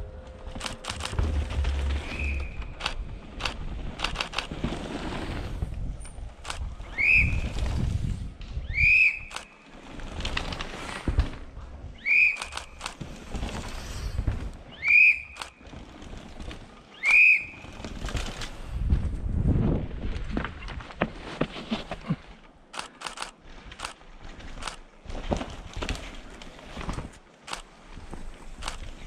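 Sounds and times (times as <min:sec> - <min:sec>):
low rumble: 0:00.0 - 0:04.4
sharp clicks: 0:00.5 - 0:04.5, 0:06.4 - 0:06.7, 0:09.3 - 0:09.6, 0:12.2 - 0:13.0, 0:15.3 - 0:15.6, 0:22.7 - 0:24.0, 0:24.6 - 0:24.8, 0:27.5 - 0:27.7, 0:28.6 - 0:28.9
swooping whistle blasts: 0:02.0 - 0:02.7, 0:06.9 - 0:07.4, 0:08.7 - 0:09.3, 0:12.0 - 0:12.6, 0:14.8 - 0:15.4, 0:17.0 - 0:17.6.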